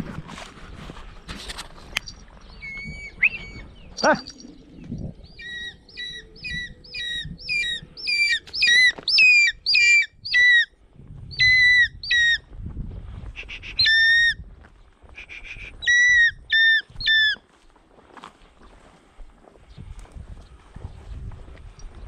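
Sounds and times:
hawk-eagle shrill calls: 0:02.5 - 0:04.4, 0:05.3 - 0:10.7, 0:11.3 - 0:12.4, 0:13.4 - 0:14.4, 0:15.2 - 0:17.4.

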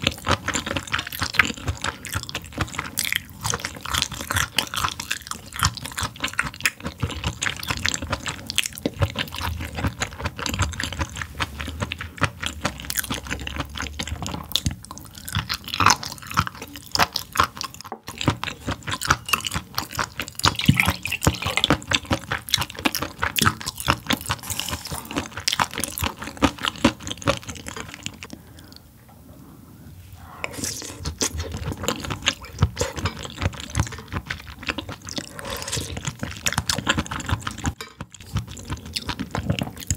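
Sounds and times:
wet chewing mouth sounds: 0:00.0 - 0:28.8, 0:30.2 - 0:39.9.

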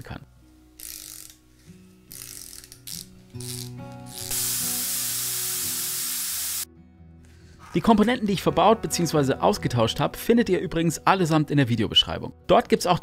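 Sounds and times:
soft background music: 0:00.0 - 0:13.0
ratchet wrench clicking: 0:00.8 - 0:01.4, 0:02.1 - 0:06.6
loud steady hiss: 0:04.2 - 0:06.7.

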